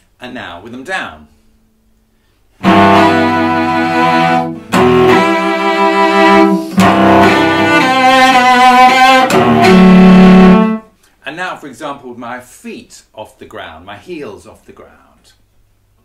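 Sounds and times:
cello bowed slow notes: 2.6s - 10.9s.

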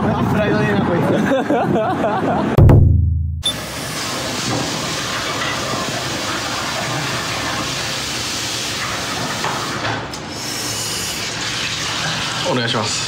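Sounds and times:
restaurant background hiss: 3.6s - 13.0s.

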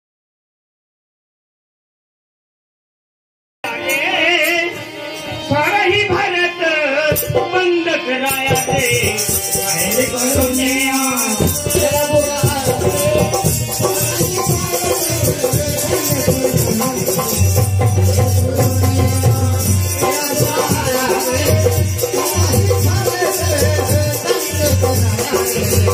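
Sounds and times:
man singing into microphone: 3.6s - 25.9s
hand drums: 8.3s - 25.9s.

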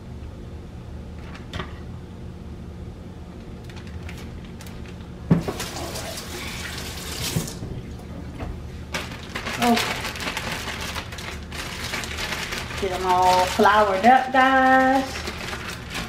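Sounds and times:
low steady hum: 0.0s - 16.0s
kitchen tap running: 5.3s - 8.5s.

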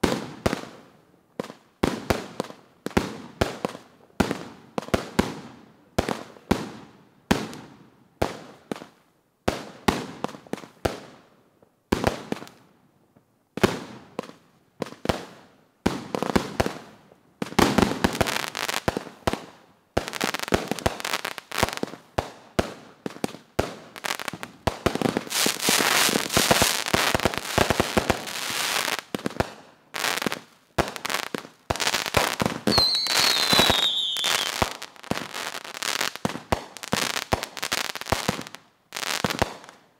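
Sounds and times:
fireworks shots and bursts: 15.9s - 39.8s
fireworks crackling: 17.5s - 39.8s.

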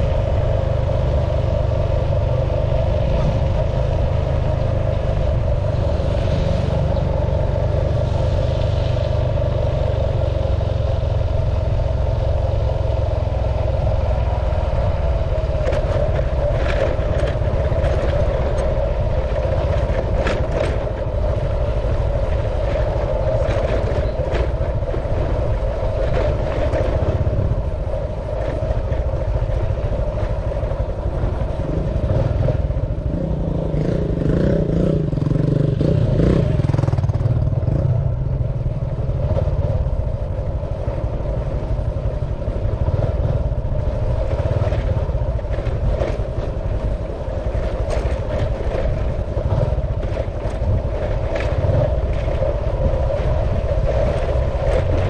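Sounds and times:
vehicle engine running: 0.0s - 55.0s
wind and road noise: 0.0s - 55.0s
rattles and knocks on gravel road: 15.5s - 21.4s, 43.9s - 55.0s.

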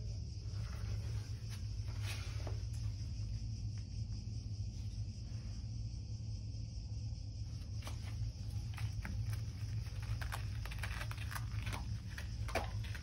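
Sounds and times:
steady low hum: 0.0s - 13.0s
cat paws scratching doormat: 7.8s - 13.0s.

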